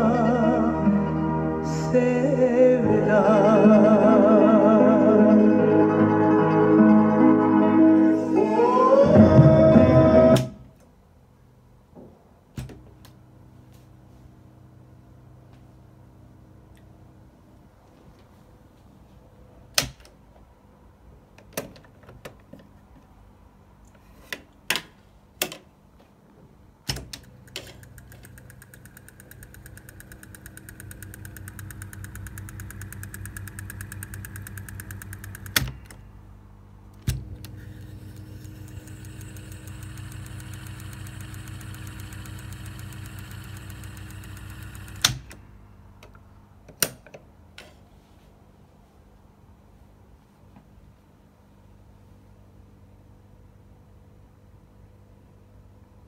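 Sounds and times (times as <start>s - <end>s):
tape transport whirring: 26.9s - 36.1s, 36.9s - 45.5s.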